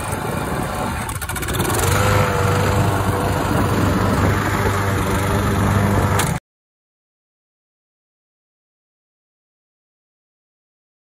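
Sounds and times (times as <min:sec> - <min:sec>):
lawn mower engine running: 0:00.0 - 0:06.4.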